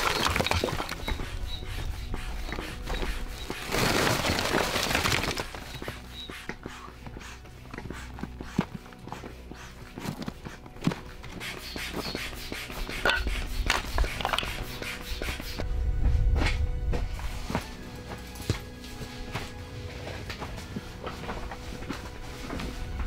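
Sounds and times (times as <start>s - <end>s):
logs tumbling from a sack: 3.4s - 6.0s.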